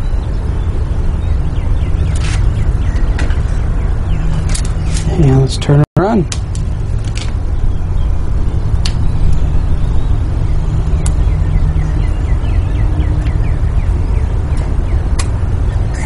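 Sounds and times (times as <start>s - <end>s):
wind buffeting microphone: 0.0s - 16.0s
sharp clicks: 14.6s - 15.4s.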